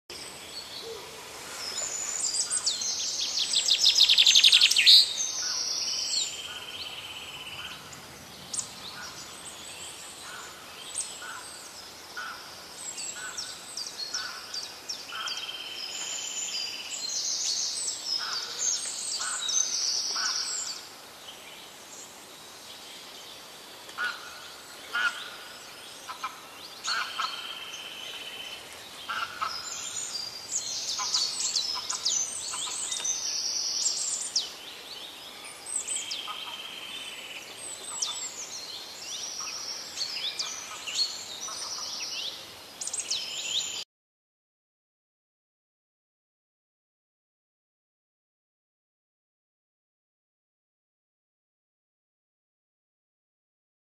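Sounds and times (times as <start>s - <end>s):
birds chirping and calling: 0.1s - 20.9s, 23.9s - 43.8s.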